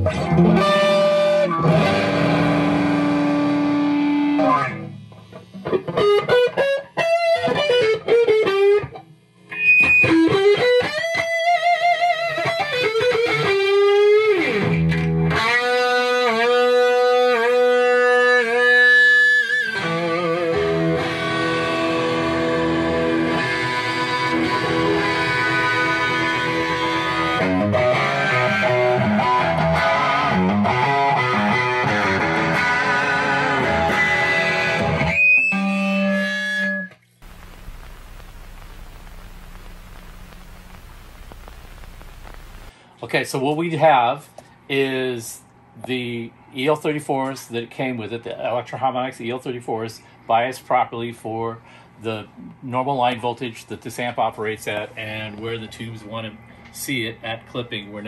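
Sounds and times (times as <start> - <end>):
distorted electric guitar: 0.0 - 35.2, 37.2 - 42.7.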